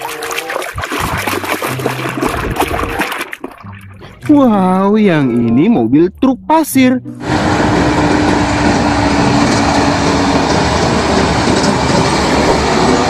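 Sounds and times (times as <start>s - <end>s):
low steady tone: 3.7s - 8.1s
dump trucks driving past: 7.0s - 13.0s.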